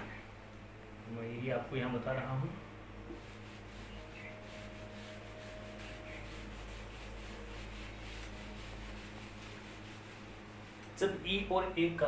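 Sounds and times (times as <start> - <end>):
whiteboard eraser rubbing: 3.1 - 11.0.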